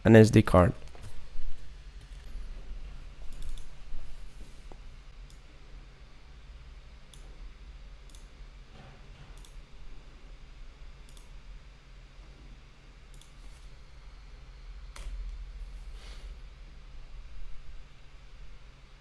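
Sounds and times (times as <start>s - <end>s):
faint low hum: 0.0s - 19.0s
computer mouse clicks: 3.3s - 3.7s, 8.1s - 8.3s, 9.4s - 9.6s, 11.1s - 11.3s, 13.1s - 13.7s.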